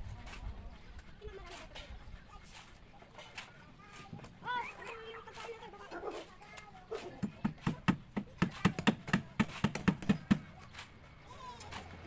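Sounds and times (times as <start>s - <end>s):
hammer striking wooden formwork: 7.1s - 10.6s.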